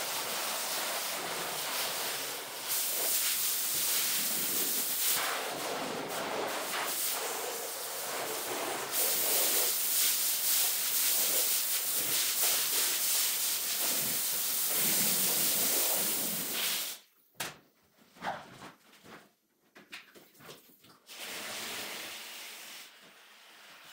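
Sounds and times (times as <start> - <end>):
pressure washer spraying: 0.0 - 5.7, 6.5 - 17.0.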